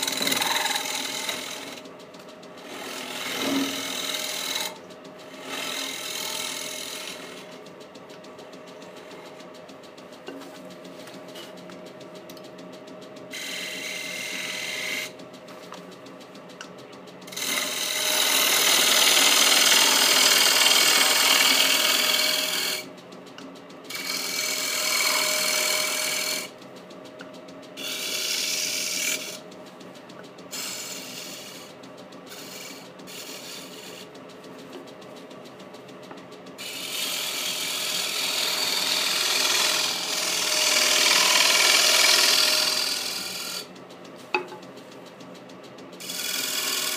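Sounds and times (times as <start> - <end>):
wood lathe motor hum: 0.0 - 1.8, 2.6 - 7.6, 13.3 - 15.1, 17.3 - 22.9, 23.9 - 26.6, 27.8 - 29.4, 30.5 - 34.1, 36.6 - 43.7, 46.0 - 46.9
turning tool scraping wood: 0.0 - 7.7, 8.5 - 11.7, 13.3 - 15.9, 17.2 - 22.9, 23.9 - 26.6, 27.8 - 35.1, 36.6 - 44.5, 46.0 - 46.9.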